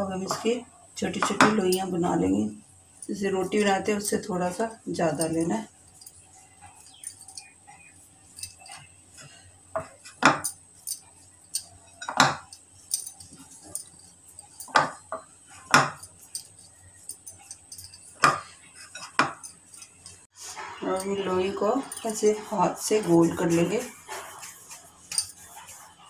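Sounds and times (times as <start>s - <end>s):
bangles clinking: 1.2s - 20.3s, 20.9s - 26.0s.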